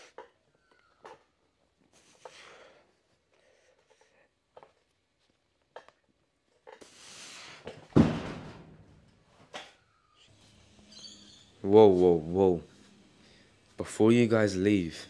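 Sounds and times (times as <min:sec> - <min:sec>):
dumbbells thudding on rubber mat: 0:07.8 - 0:08.9.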